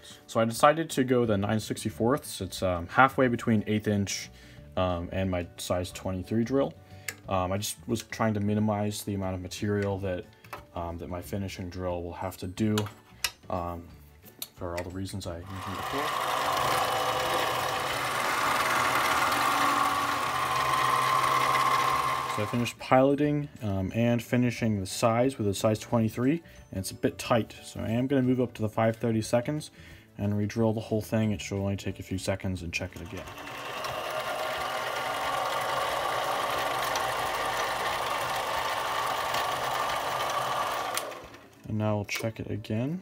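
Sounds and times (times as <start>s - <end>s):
drill boring into steel rod: 15.4s - 22.7s, 32.9s - 41.4s
lathe motor hum and whine: 15.5s - 22.6s, 33.3s - 41.4s.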